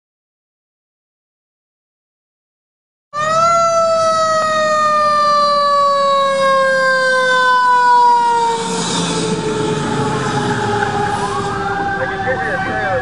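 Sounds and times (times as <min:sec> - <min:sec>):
fire engine siren: 0:03.2 - 0:13.0
tyres hissing on wet road: 0:08.4 - 0:11.4.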